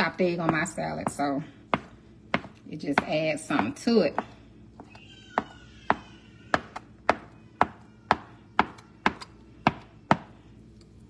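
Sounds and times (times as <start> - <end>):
knife chopping on cutting board: 0.4 - 4.4.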